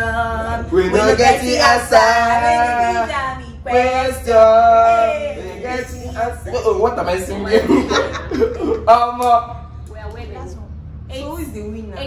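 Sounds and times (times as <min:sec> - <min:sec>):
voices singing unaccompanied: 0:00.0 - 0:07.8.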